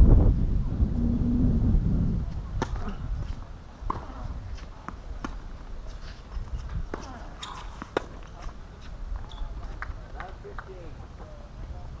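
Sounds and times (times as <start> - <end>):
wind rumble on microphone: 0.0 - 7.4, 8.5 - 12.0.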